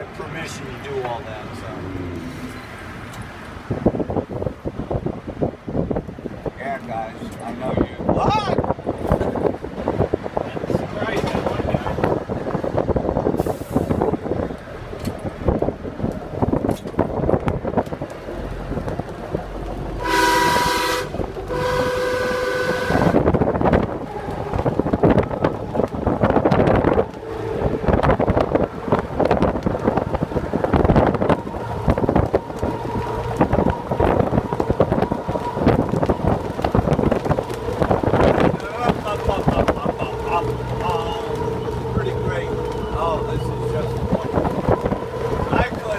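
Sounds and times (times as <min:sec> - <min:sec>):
wind rushing: 0:00.4 - 0:45.9
trolley horn blasts: 0:20.0 - 0:23.4.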